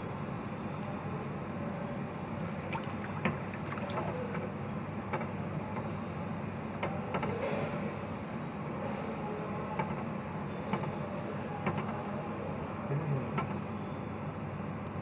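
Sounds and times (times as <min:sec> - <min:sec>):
water churning in tank: 0:02.5 - 0:04.4.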